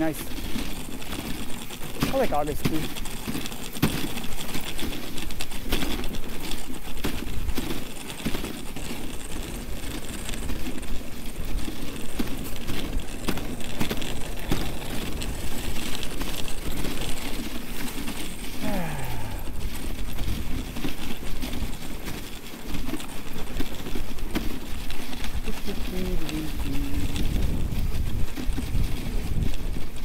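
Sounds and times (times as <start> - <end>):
sled rattling clicks and knocks: 0.0 - 30.0
sled runners scraping over snow: 0.0 - 30.0.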